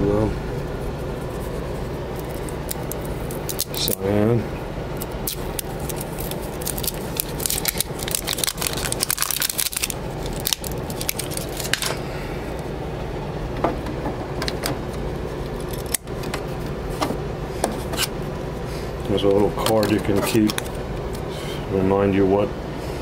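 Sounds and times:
plastic wrapper crackling: 0:02.1 - 0:04.0, 0:05.0 - 0:11.9.

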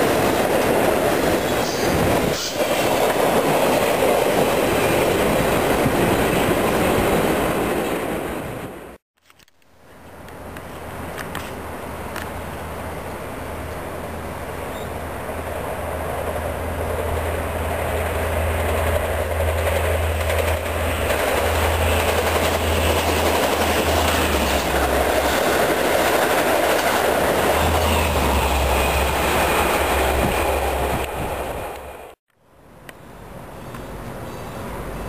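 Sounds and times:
train wheels rushing on rails: 0:00.0 - 0:08.8, 0:10.1 - 0:32.2.

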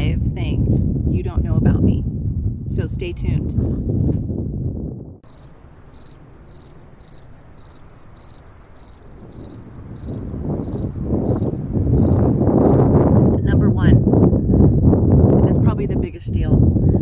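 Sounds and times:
cricket chirping: 0:05.2 - 0:13.1.

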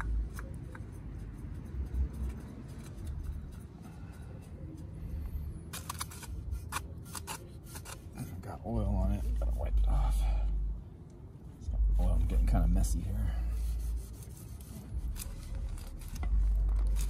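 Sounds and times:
soft rubbing and scraping: 0:11.7 - 0:17.0.

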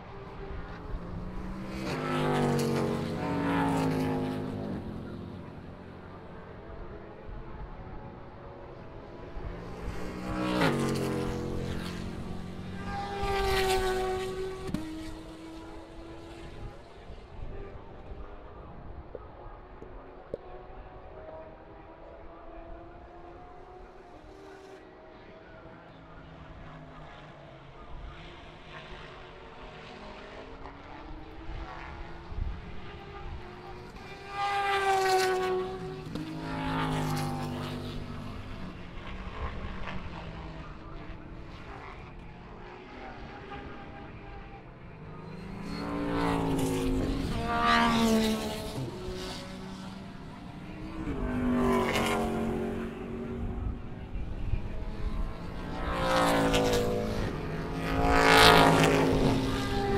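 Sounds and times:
distant race car engines: 0:00.0 - 0:59.9
race cars passing at speed: 0:00.0 - 0:59.9.

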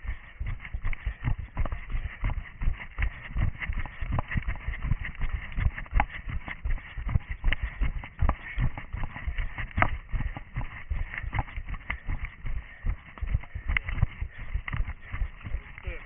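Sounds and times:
running footsteps on rough ground: 0:00.0 - 0:16.0.

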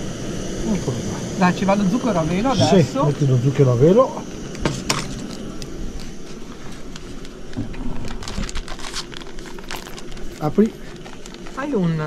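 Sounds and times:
faint hiss: 0:00.0 - 0:12.0
frying oil crackling: 0:00.0 - 0:12.0
clicks and rustles: 0:04.6 - 0:11.7.

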